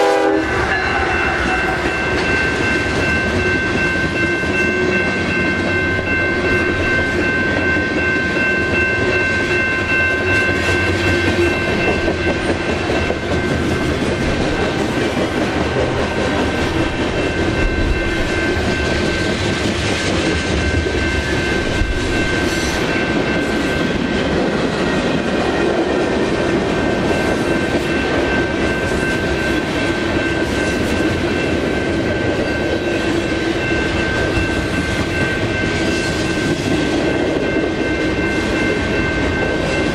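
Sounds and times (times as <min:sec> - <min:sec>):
high-pitched ringing from wheels: 0:00.0 - 0:39.9
freight train wheels clicking over rails: 0:10.2 - 0:39.9.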